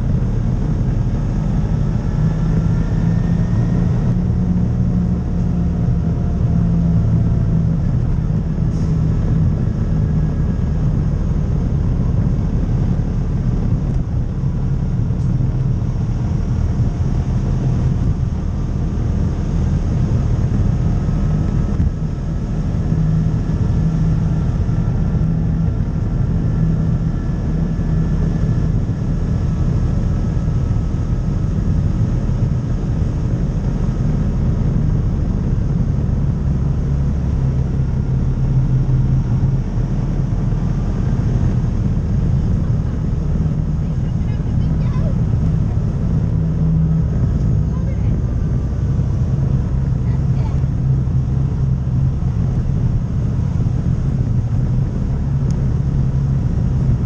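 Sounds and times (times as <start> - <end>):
vehicle engine running: 0.0 - 57.0.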